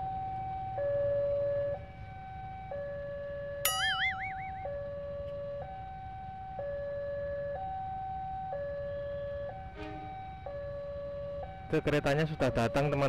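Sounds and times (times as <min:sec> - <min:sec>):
level crossing warning alarm: 0:00.0 - 0:13.0
warbling whistle: 0:03.7 - 0:04.8.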